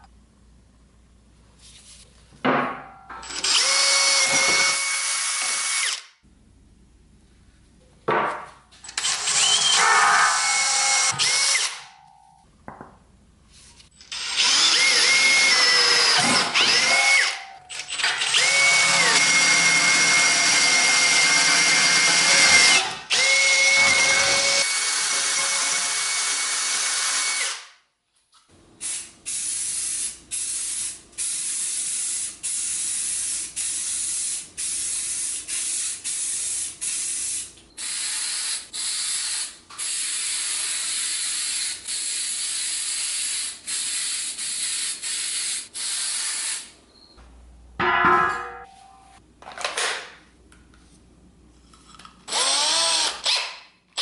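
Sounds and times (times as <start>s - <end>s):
cordless drill boring through steel: 3.2s - 6.0s, 9.0s - 11.8s, 14.0s - 27.6s, 52.3s - 53.5s.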